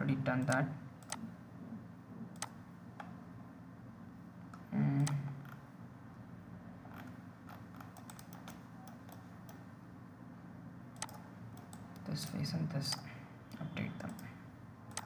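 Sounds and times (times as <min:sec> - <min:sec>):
low background hum: 0:00.0 - 0:15.0
computer mouse clicks: 0:00.4 - 0:01.3, 0:02.4 - 0:03.2, 0:06.9 - 0:09.6, 0:11.0 - 0:15.0.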